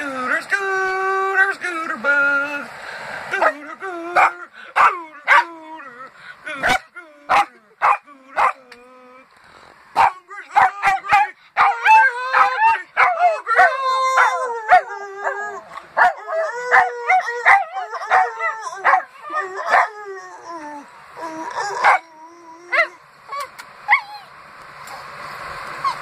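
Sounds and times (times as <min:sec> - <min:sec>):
dog howling and barking: 0:03.3 - 0:08.7, 0:10.0 - 0:24.3
dog yipping: 0:06.6 - 0:08.6, 0:10.0 - 0:15.4, 0:16.0 - 0:19.9, 0:21.5 - 0:22.1.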